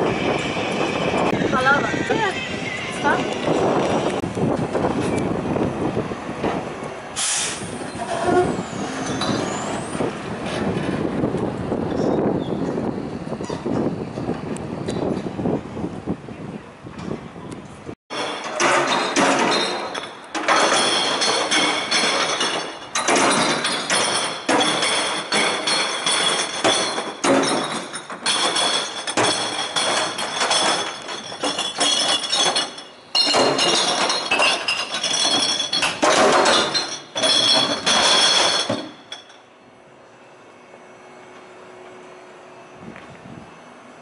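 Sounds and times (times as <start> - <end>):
glass bottles clinking and clattering: 18.1 - 39.5.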